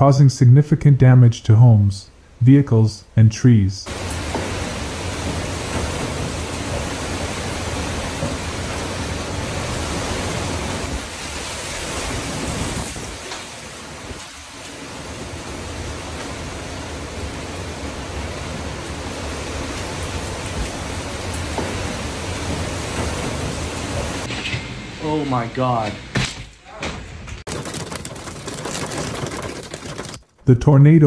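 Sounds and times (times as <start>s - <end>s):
driving rain: 3.9s - 24.4s, 27.3s - 30.4s.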